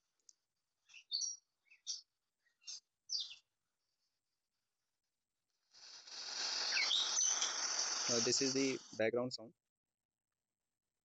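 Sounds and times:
high bird chirps: 0.8s - 3.5s, 5.8s - 9.0s
rain hiss: 5.7s - 9.0s.

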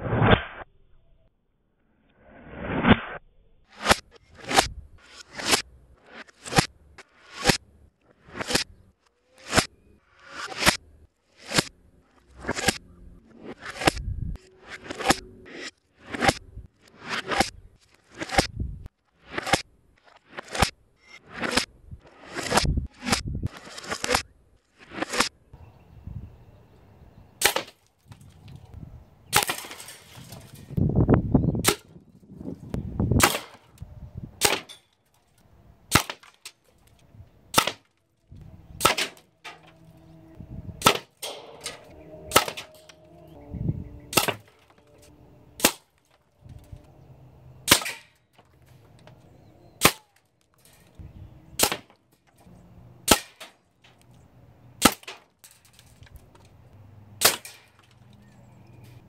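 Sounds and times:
pellets hitting cinder block: 29.4s - 30.6s
air rifle shots: 33.2s - 33.6s, 37.5s - 37.8s, 38.8s - 39.2s, 44.1s - 44.6s, 51.6s - 51.9s, 57.2s - 57.6s.

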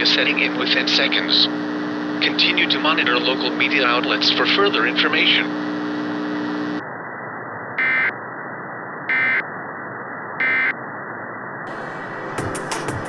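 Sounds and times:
music: 11.7s - 13.0s.

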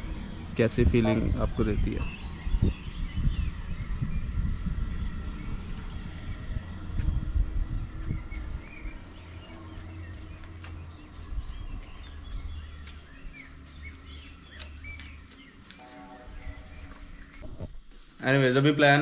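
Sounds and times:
low outdoor rumble: 0.0s - 15.6s
songbirds chirping: 0.0s - 17.4s
steady high hiss: 0.0s - 18.7s.

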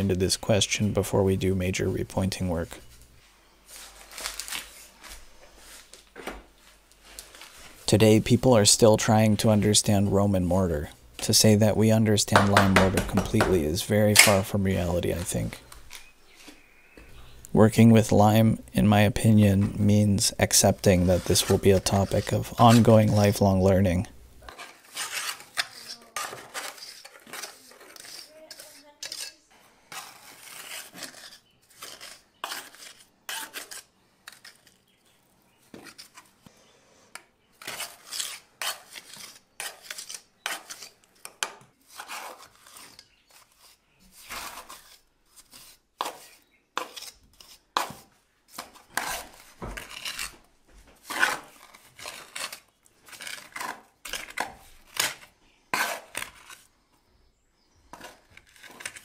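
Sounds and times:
trowel scraping on metal hawk: 20.2s - 23.5s, 24.4s - 34.8s, 37.6s - 50.4s, 51.0s - 56.7s, 57.9s - 59.0s.

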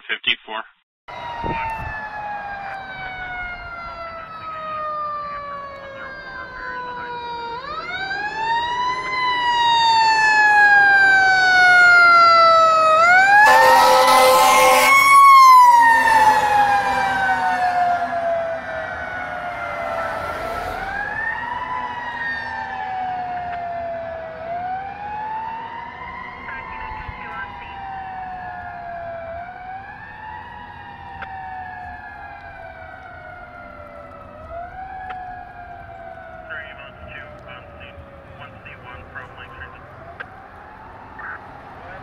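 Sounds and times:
fire engine siren wailing: 1.1s - 42.0s
horn blasting: 13.3s - 18.4s.

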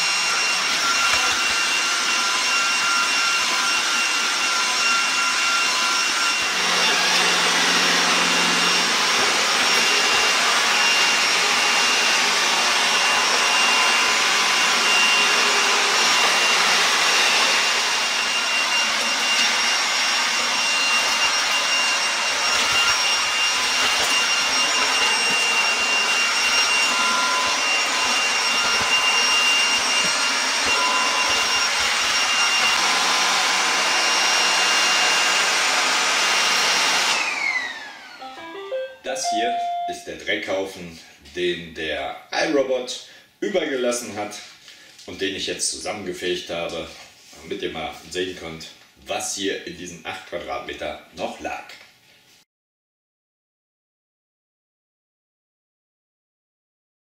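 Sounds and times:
robot vacuum whirring: 0.0s - 38.8s.

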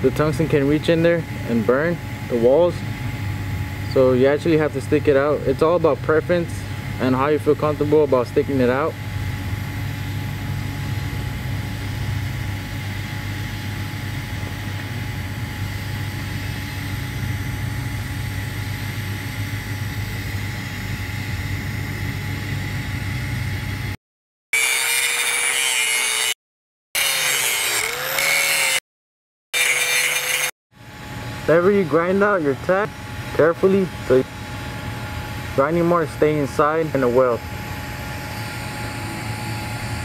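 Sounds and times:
angle grinder grinding steel: 24.6s - 26.4s, 27.0s - 28.8s, 29.6s - 30.5s.

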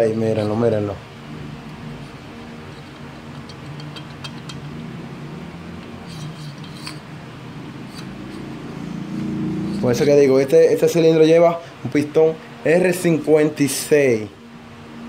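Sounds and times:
steady low hum: 0.0s - 15.0s
piston rattling in cylinder: 2.6s - 4.9s, 5.8s - 7.1s.

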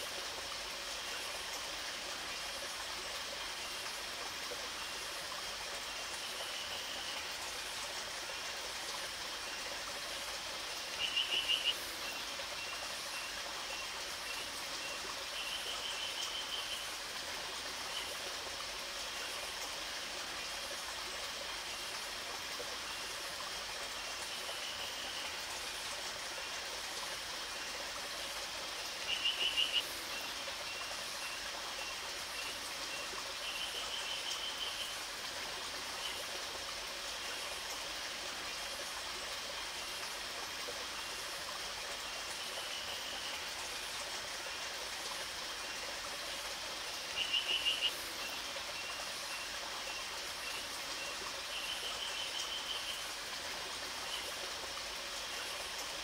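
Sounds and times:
rattling frog calls: 11.0s - 11.8s.

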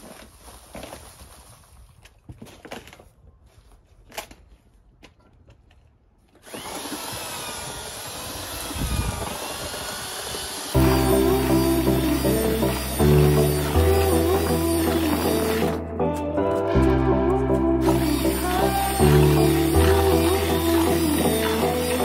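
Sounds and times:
handheld power tool whining: 6.3s - 15.9s, 17.8s - 22.0s.

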